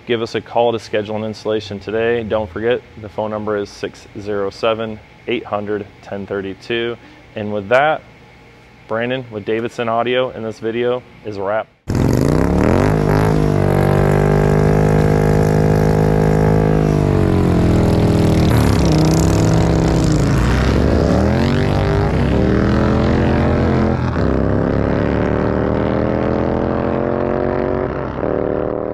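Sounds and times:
engine revving: 11.9 - 28.9.

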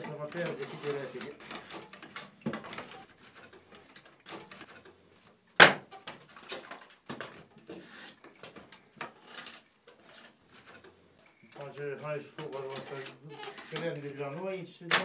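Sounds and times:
draw knife scraping wood: 0.0 - 5.0, 5.9 - 10.9, 11.6 - 14.0
sharp knock: 5.6 - 5.9.

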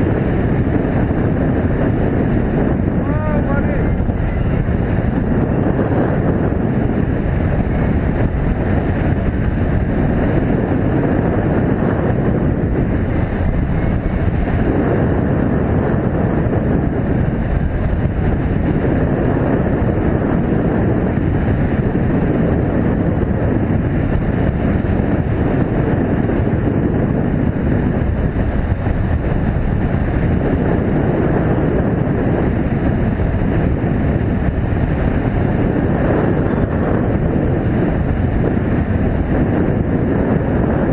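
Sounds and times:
wind buffeting microphone: 0.0 - 40.9.

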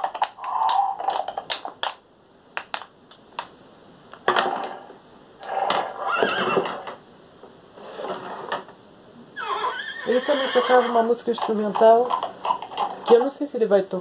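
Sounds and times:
toy horse sound effects: 9.4 - 12.9.

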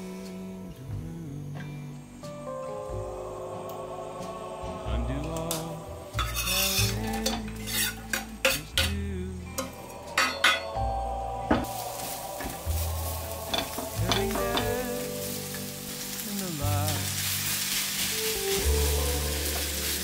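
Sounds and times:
food sizzling in a pan: 5.5 - 8.9, 11.5 - 20.0
metal utensils scraping a pan: 6.2 - 9.0, 9.6 - 10.7, 11.6 - 16.2, 17.1 - 20.0.

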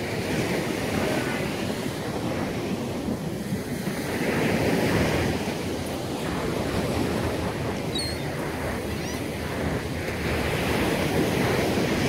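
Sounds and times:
surf washing on beach: 0.0 - 12.0
wind rumbling on microphone: 0.0 - 12.0.

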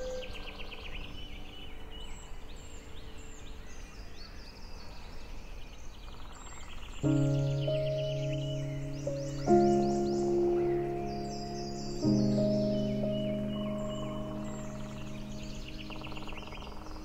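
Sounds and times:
birds chirping: 0.0 - 17.0
soft outdoor hiss: 0.0 - 17.0
ambient music chord: 7.0 - 17.0.

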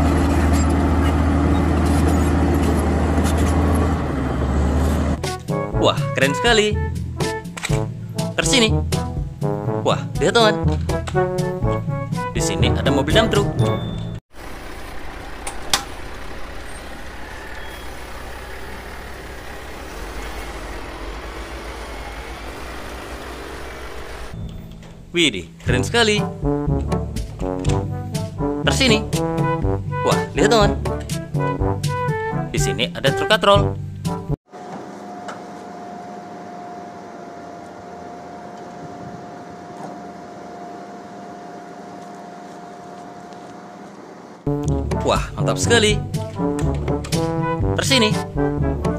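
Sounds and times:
truck diesel engine idling: 14.3 - 25.1
crane hydraulic hum: 14.4 - 25.1, 34.5 - 44.5
constant high whine: 14.4 - 27.4, 34.5 - 44.5.

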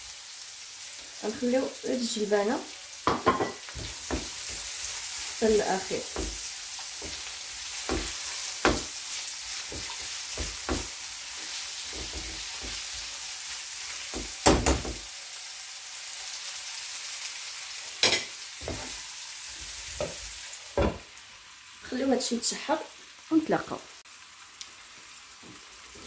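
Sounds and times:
vegetables sizzling in oil: 0.0 - 26.0
spatula scraping a pan: 3.6 - 13.2.

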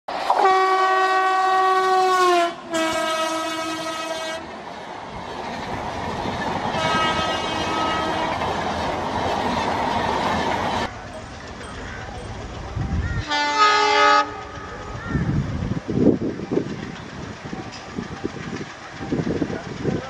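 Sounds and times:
locomotive horn blasts: 0.3 - 4.5, 6.7 - 8.6, 13.2 - 14.6
train wheels clattering: 2.2 - 20.0.

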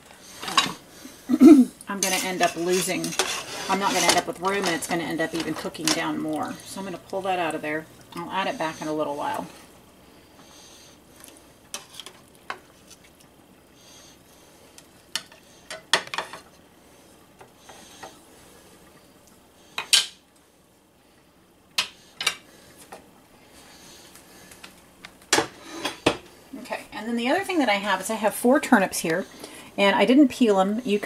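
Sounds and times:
utensils scraping a metal pot: 2.0 - 6.2.

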